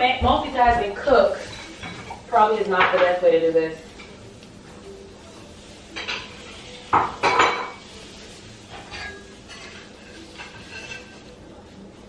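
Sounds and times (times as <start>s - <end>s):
pots and pans clattering: 0.0s - 3.3s, 5.9s - 8.0s, 8.6s - 11.4s.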